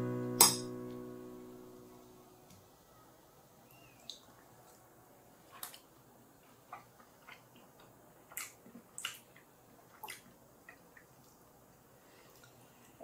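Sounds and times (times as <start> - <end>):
person chewing crisp food: 6.4 - 11.4.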